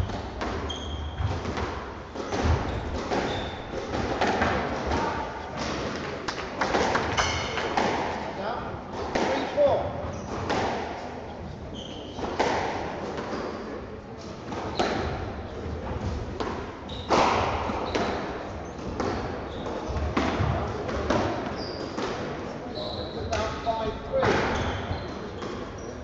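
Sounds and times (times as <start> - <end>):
shoes squeaking on court floor: 0.0 - 5.6, 9.2 - 10.6, 11.7 - 12.6, 16.8 - 26.0.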